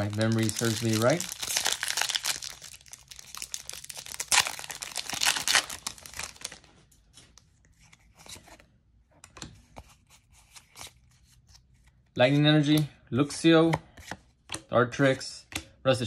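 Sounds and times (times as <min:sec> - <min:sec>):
foil wrapper tearing and crinkling: 0:00.0 - 0:06.7
cards tapping and rustling: 0:13.6 - 0:14.7.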